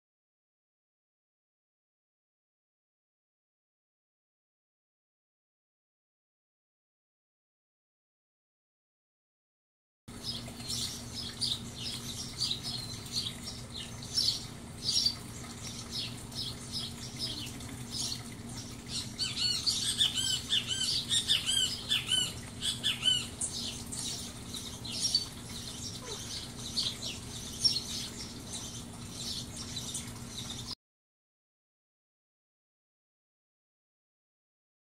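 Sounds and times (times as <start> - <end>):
small birds chirping: 10.2 - 30.8.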